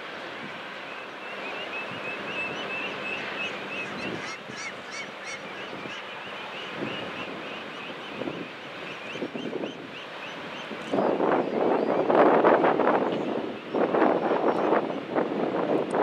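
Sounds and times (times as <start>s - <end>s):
birds chirping: 0.9s - 12.1s.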